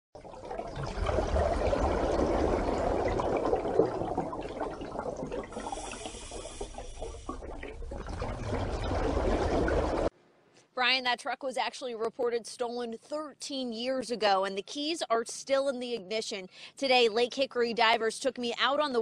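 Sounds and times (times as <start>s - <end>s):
rushing splashing water: 0.2s - 10.1s.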